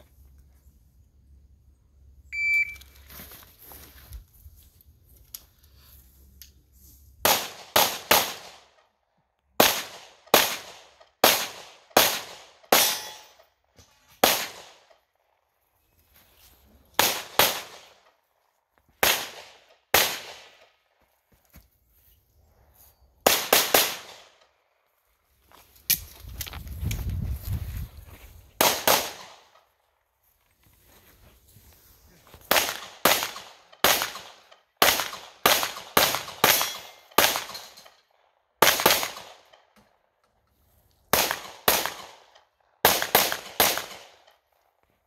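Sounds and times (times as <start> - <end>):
shot timer beep: 2.3 - 2.9
pistol shots: 7.2 - 8.7, 9.6 - 13.3, 14.2 - 14.8, 17.0 - 18.0, 19.0 - 20.6, 23.2 - 24.4, 28.6 - 29.5, 32.5 - 37.6, 41.1 - 44.2.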